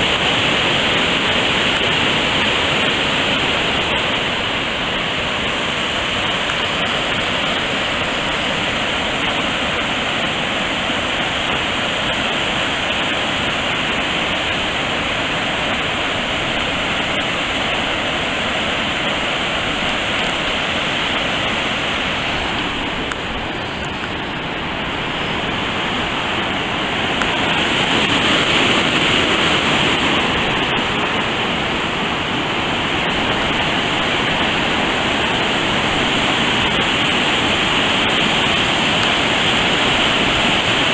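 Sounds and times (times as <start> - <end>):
water rushing over rapids: 0.0 - 40.9.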